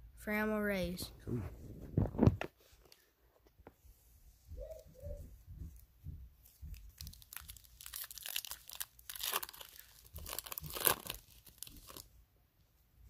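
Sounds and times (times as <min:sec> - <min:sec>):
card pack wrapper tearing: 0:07.0 - 0:12.1.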